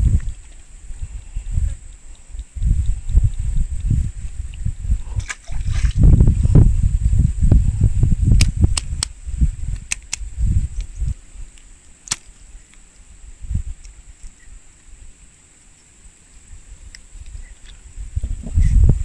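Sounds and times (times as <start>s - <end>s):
low rumbling on microphone: 0.0s - 11.5s, 13.2s - 13.8s, 16.5s - 19.0s
sharp clicks: 1.8s - 4.0s, 8.4s - 13.0s
fish splashing into stream: 5.2s - 6.1s.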